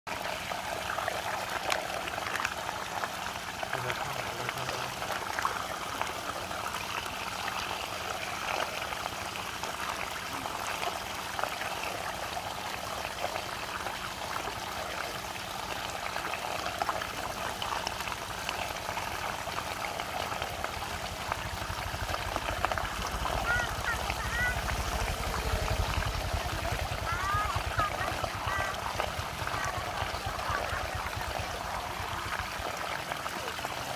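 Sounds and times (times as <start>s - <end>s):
water swirling and draining: 0.1s - 33.9s.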